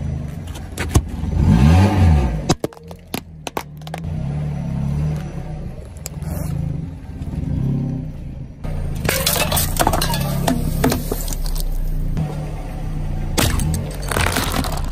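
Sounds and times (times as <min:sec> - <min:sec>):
car engine running low: 0:00.0 - 0:14.9
cans crushed by tyre: 0:02.5 - 0:04.1, 0:09.0 - 0:11.8, 0:13.4 - 0:14.9.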